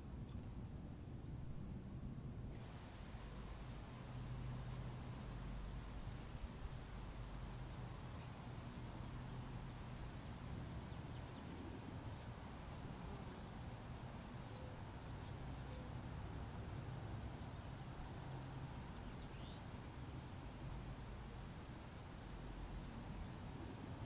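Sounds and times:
steady low hum: 0.0 - 24.0
faint high-pitched chirps: 7.5 - 15.9.

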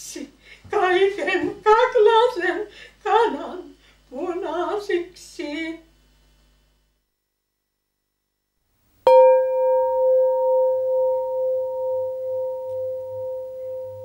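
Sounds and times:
bell ringing: 9.1 - 14.0.

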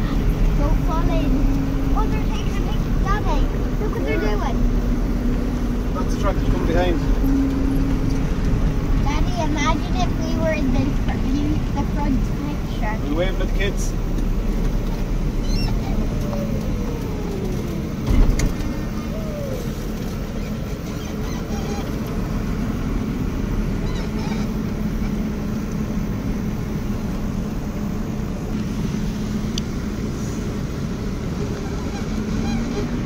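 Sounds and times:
tractor engine running: 0.0 - 33.0
thump: 18.0 - 18.6.

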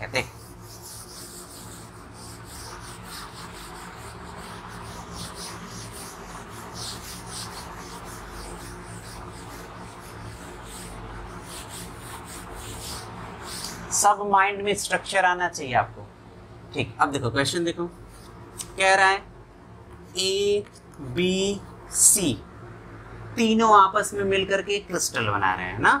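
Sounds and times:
duster rubbing blackboard: 0.0 - 14.0.

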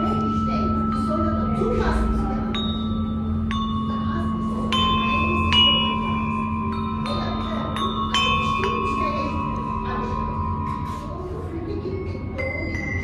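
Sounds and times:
bronze bells ringing: 0.0 - 13.0.

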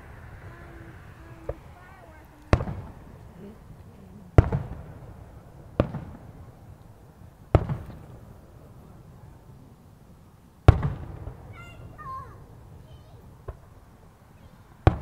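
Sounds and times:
firework booms: 0.0 - 9.4, 10.6 - 14.1, 14.8 - 15.0
rumbling echo: 0.0 - 9.4.

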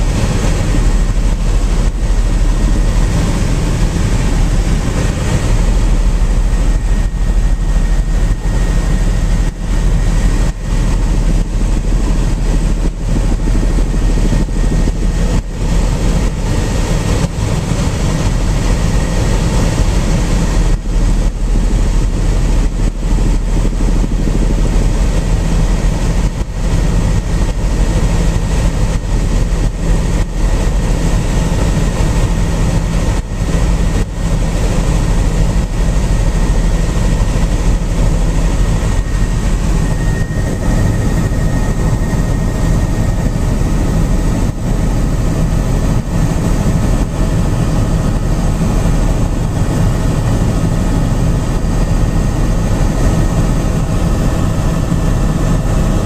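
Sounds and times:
helicopter engine and rotor drone: 0.0 - 56.0
faint high whine: 35.1 - 55.8.

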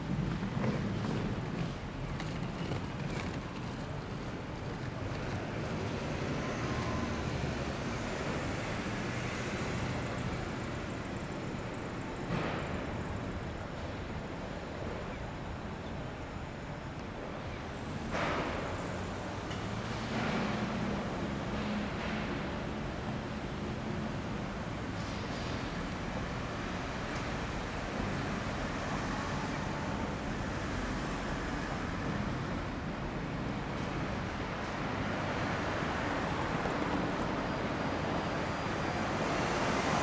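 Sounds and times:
city road traffic: 0.0 - 40.0.

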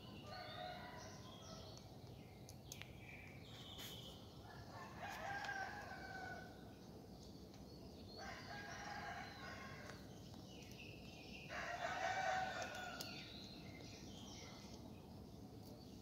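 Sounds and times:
rooster crowing: 4.7 - 6.4, 11.5 - 13.0.

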